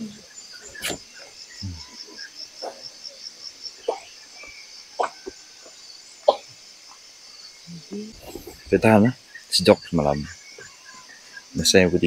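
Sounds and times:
short sharp calls: 0.0 - 1.9
insects trilling: 0.0 - 12.0.

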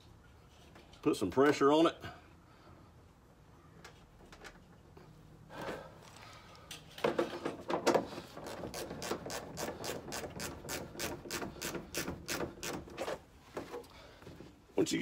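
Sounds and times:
hand ratchet clicking: 8.4 - 12.9.

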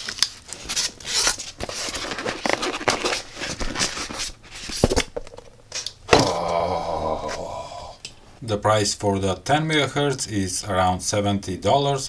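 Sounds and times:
foam and cardboard scraping: 0.5 - 5.0.

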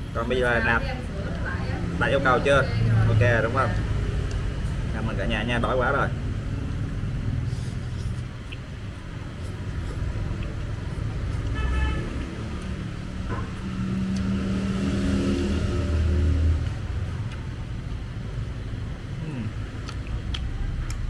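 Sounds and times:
traffic engine rumble: 0.0 - 21.0
vehicle engine passing close: 9.4 - 19.8
car horn toot: 11.6 - 12.2.

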